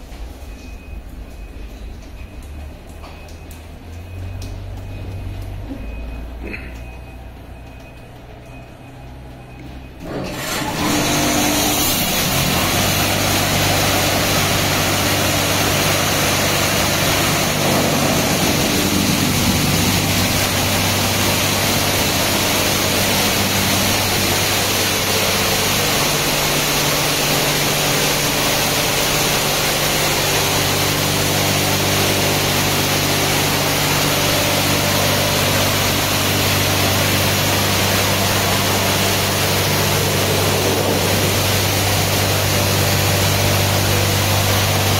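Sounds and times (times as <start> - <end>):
machinery low hum: 0.0 - 44.9
water jets hissing on a car: 10.3 - 44.9.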